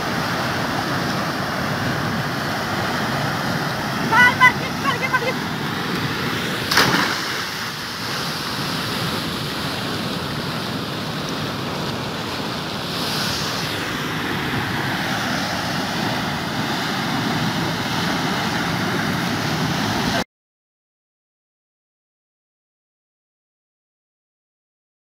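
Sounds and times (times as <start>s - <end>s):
water pouring from culvert: 6.4s - 16.6s
splash of person jumping in: 6.6s - 7.8s.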